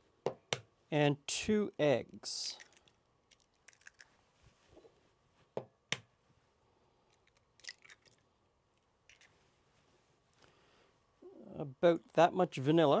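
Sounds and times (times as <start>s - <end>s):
eggshell crackling: 2.6s - 4.2s, 7.1s - 8.4s, 9.0s - 9.3s.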